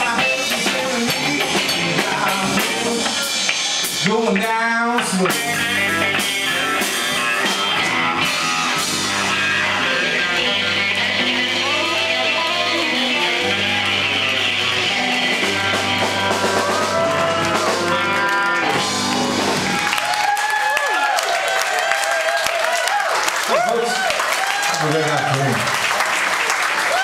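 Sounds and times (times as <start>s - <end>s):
long held bass notes: 0.0s - 20.0s
live rock band playing: 0.0s - 20.6s.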